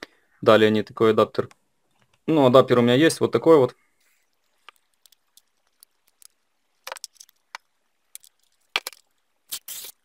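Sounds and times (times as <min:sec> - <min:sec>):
cord rustling: 0:04.0 - 0:10.0.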